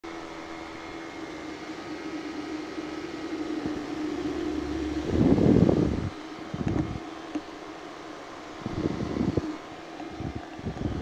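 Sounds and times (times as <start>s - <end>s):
engine and propeller droning: 0.1s - 11.0s
wind noise on microphone: 4.8s - 7.0s, 8.6s - 11.0s.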